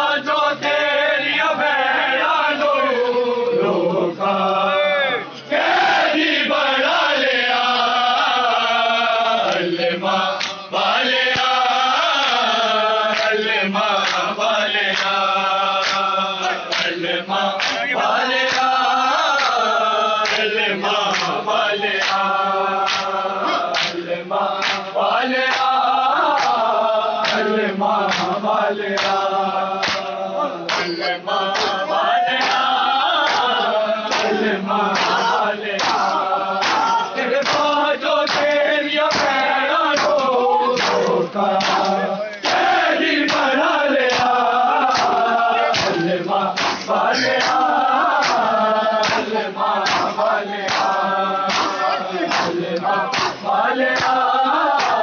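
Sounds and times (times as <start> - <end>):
men chanting in unison: 0.0 - 55.0
hands slapping chests: 10.4 - 10.6, 11.3 - 11.6, 13.1 - 13.4, 14.0 - 14.3, 14.9 - 15.2, 15.8 - 17.0, 17.6 - 19.6, 20.2 - 20.5, 21.1 - 24.0, 24.6 - 24.9, 25.5 - 31.8, 32.4 - 39.4, 40.0 - 55.0.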